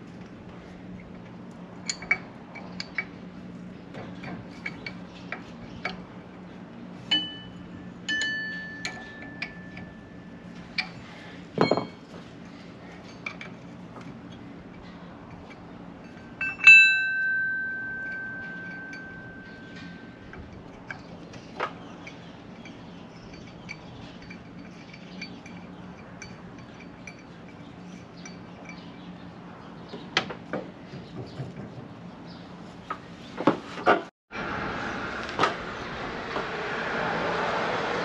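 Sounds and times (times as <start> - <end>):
low steady hum: 0.0 - 29.9
struck metal ringing: 7.1 - 11.0, 15.3 - 21.0.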